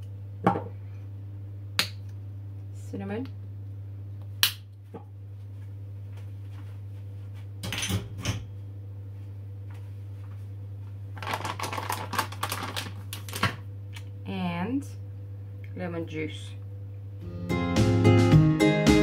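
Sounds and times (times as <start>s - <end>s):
steady low hum: 0.0s - 17.6s
plastic packet crinkling: 11.2s - 13.6s.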